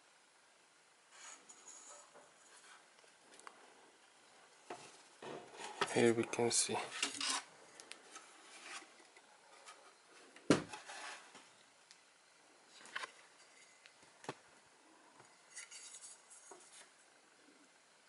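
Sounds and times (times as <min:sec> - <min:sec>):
light rubbing: 0:01.1 - 0:03.0, 0:04.7 - 0:10.1, 0:15.2 - 0:17.0.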